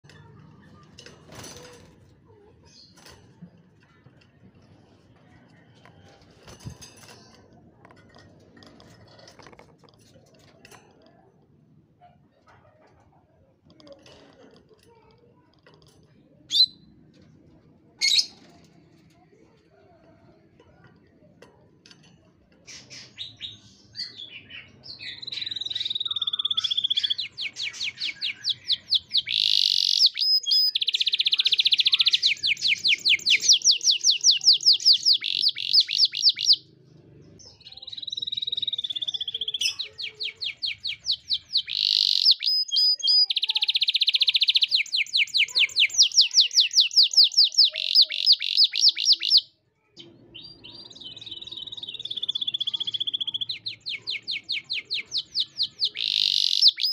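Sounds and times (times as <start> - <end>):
canary singing: 16.5 - 17.0, 22.7 - 56.9.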